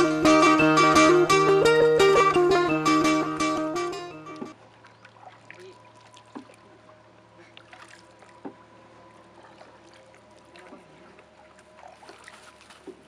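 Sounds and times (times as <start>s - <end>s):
paddle knock: 2.2s - 4.6s
paddle splashing in water: 4.3s - 13.0s.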